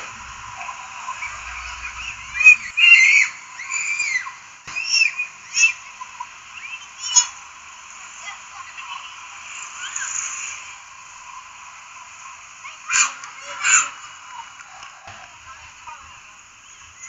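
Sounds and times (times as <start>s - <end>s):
high-pitched animal calls: 0.0s - 7.4s
steady hiss: 0.0s - 17.0s.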